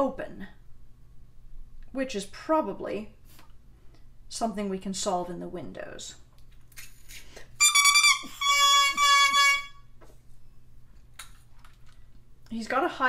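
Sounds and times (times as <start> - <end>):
oboe reed squawking: 7.6 - 9.9.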